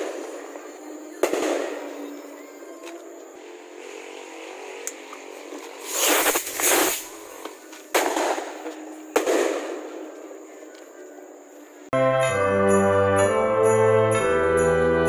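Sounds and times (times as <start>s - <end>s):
firecracker bangs with echo: 0.0s - 2.2s, 5.8s - 7.1s, 7.9s - 10.2s
firework hissing burst: 5.7s - 10.0s.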